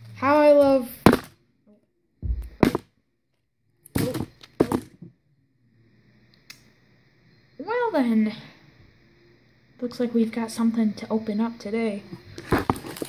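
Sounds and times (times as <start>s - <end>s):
knocks and thumps: 1.0s - 1.3s, 2.2s - 2.8s, 3.9s - 5.1s, 12.4s - 13.0s.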